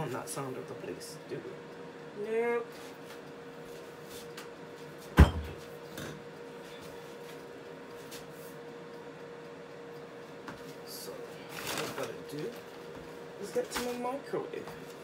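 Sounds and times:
faint background hum: 0.0s - 15.0s.

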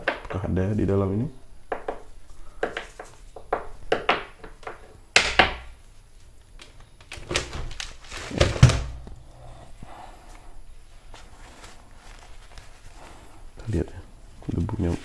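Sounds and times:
rustling: 5.7s - 15.0s.

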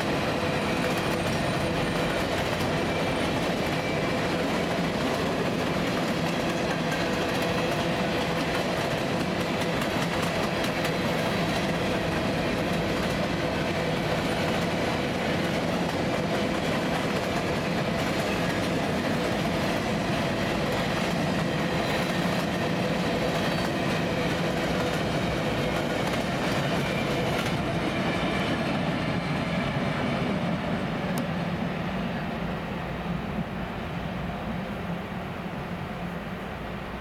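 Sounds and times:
steel wheels clattering on rails: 0.0s - 30.6s
freight train rolling past: 0.0s - 37.0s.

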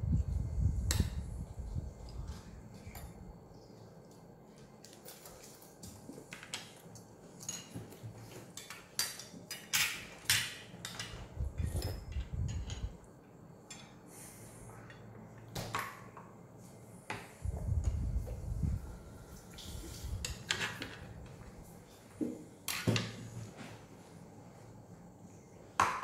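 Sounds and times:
cutlery clinking on plates: 7.4s - 12.9s.

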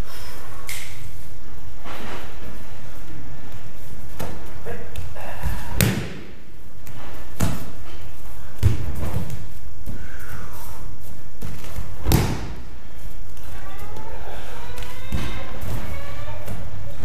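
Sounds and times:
body thudding on padded mats: 11.4s - 12.7s.

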